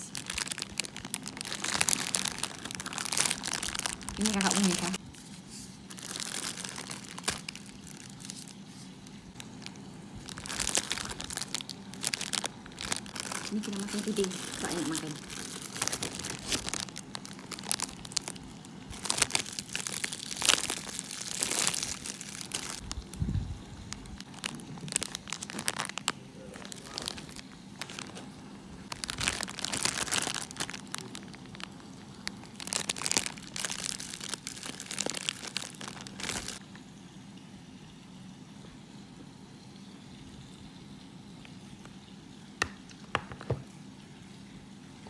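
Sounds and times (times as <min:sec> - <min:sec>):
plastic wrappers crinkling: 0:00.0 - 0:23.2, 0:23.8 - 0:36.6.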